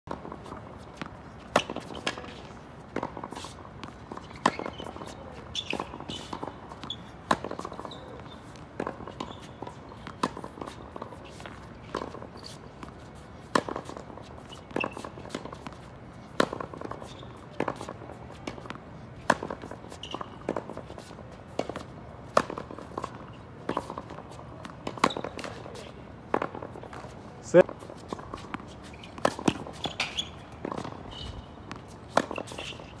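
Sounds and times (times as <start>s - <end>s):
ball bouncing on hard court: 0.9s - 2.4s, 28.1s - 32.9s
tennis ball popping off racket: 3.0s - 25.7s, 28.0s - 33.0s.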